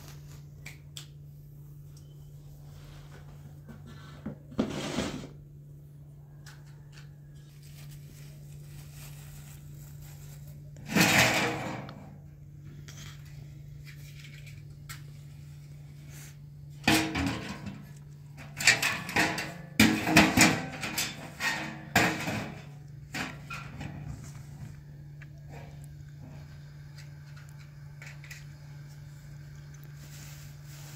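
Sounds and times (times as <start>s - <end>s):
scraping and rustling handling noises: 1.7s - 5.4s, 6.2s - 30.9s
steady low hum: 6.9s - 30.9s.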